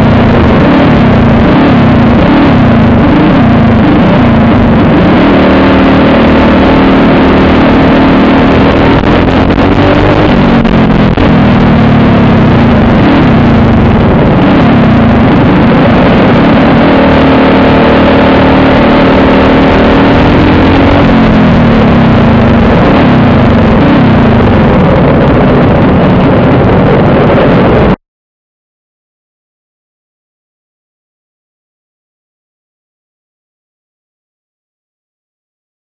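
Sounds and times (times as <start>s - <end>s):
kart engine running loud: 0.0s - 28.0s.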